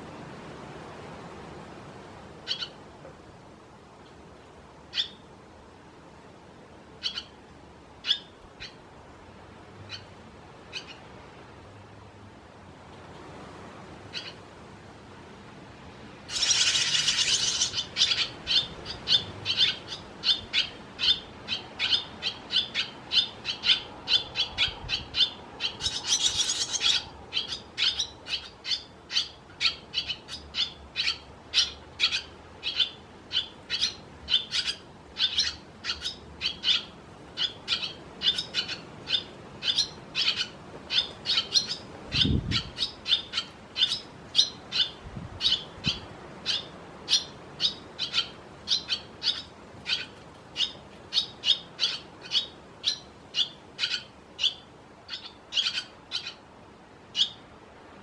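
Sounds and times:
swallow fledglings calling: 2.4 - 2.8, 4.9 - 5.3, 7.0 - 7.4, 8.0 - 8.8, 9.9 - 10.1, 10.7 - 11.1, 14.1 - 14.4, 16.2 - 56.5, 57.1 - 57.4.

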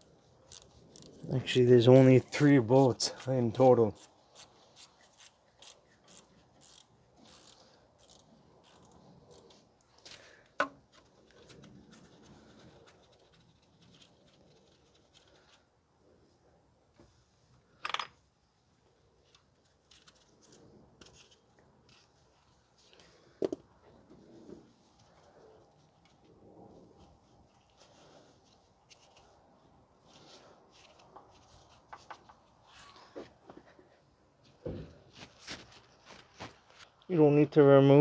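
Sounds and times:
wrench scraping and rubbing: 0.3 - 1.2, 2.3 - 9.7.

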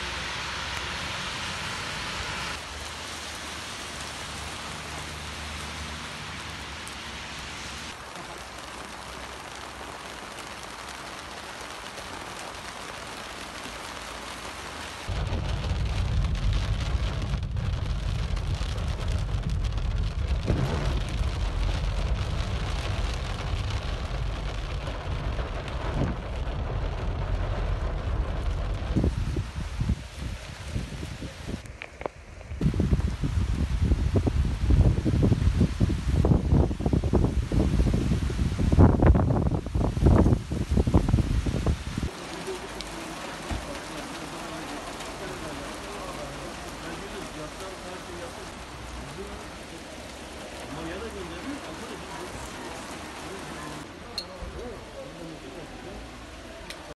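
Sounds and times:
rain on wet pavement: 0.0 - 56.9
loud low rumble: 15.1 - 31.6.

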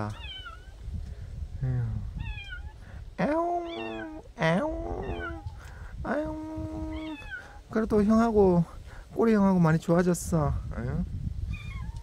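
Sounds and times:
cat meowing: 0.1 - 0.8, 2.2 - 2.8, 3.6 - 4.3, 4.9 - 5.6, 6.9 - 7.4, 11.5 - 12.0.

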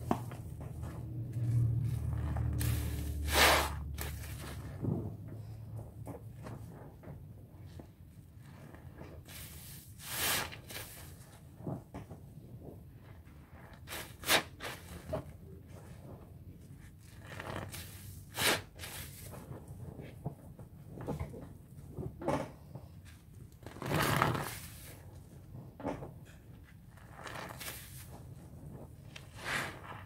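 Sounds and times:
sponge squelching in soapy water: 0.0 - 5.0, 7.7 - 11.8, 13.0 - 19.8, 23.6 - 25.2, 26.9 - 30.0.

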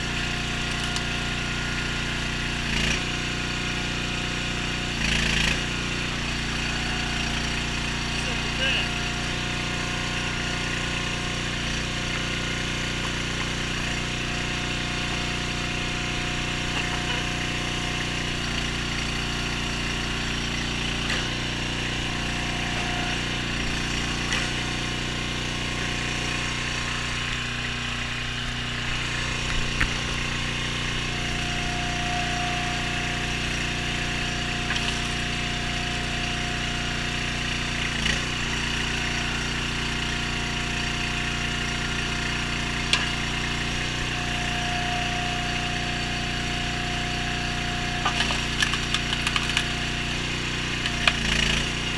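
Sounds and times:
small gas engine running: 0.0 - 51.9
thin high whine: 29.7 - 34.8, 43.6 - 48.1.

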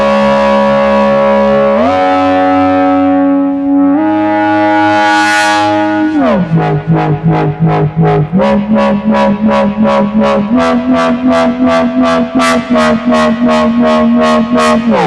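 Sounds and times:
synthesizer wobble bass: 0.0 - 15.0.

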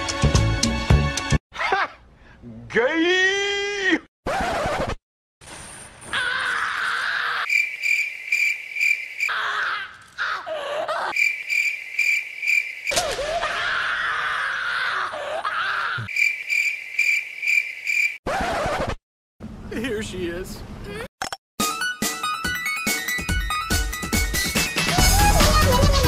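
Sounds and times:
crickets chirping: 6.9 - 13.2, 15.8 - 18.2.

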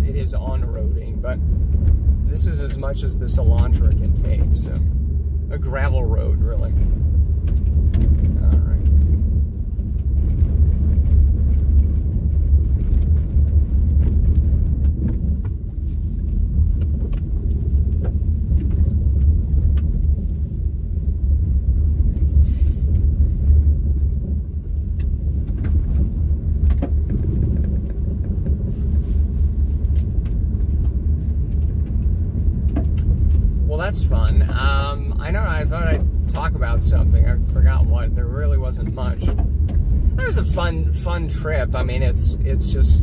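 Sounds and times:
tyres rumbling on gravel: 0.0 - 43.0
small clicks and knocks: 29.8 - 33.5.

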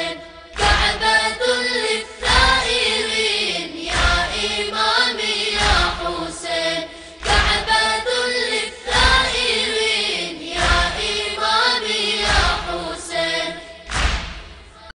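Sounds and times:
choir chanting a melody: 0.0 - 14.9
deep drum thump: 13.9 - 14.7.

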